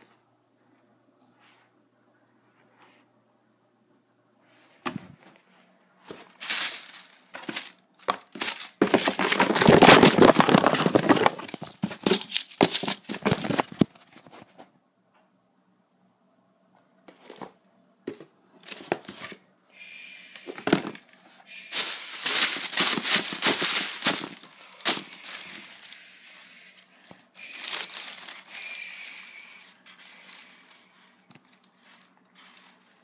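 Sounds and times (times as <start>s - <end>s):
tissue paper crinkling: 6.2s - 13.8s, 21.5s - 33.0s.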